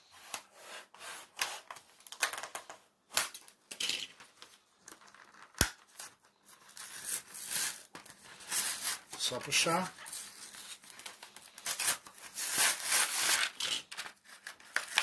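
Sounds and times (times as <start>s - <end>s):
plastic rustling and crinkling: 3.2s - 15.0s.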